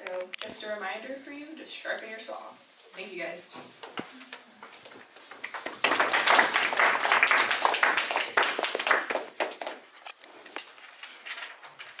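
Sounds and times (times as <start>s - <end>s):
people applauding: 5.4s - 9.8s.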